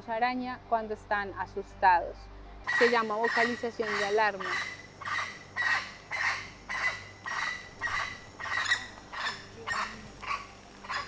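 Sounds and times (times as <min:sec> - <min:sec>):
monkey barking alarm call: 0:02.7 - 0:11.0.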